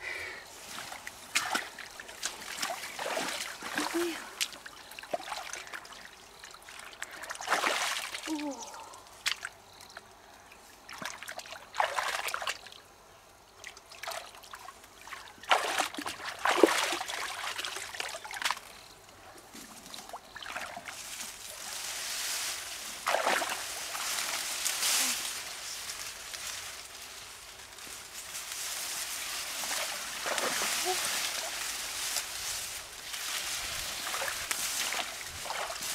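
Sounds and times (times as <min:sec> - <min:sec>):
water sloshing and trickling: 0:00.6 - 0:09.6, 0:10.8 - 0:12.8, 0:13.6 - 0:18.7, 0:19.5 - 0:24.7, 0:29.0 - 0:35.9.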